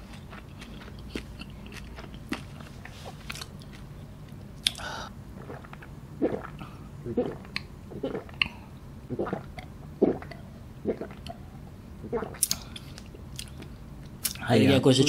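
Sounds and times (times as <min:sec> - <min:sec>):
wet chewing and swallowing: 0:00.0 - 0:14.4
person drinking from a glass jar: 0:05.4 - 0:11.4, 0:12.0 - 0:12.6.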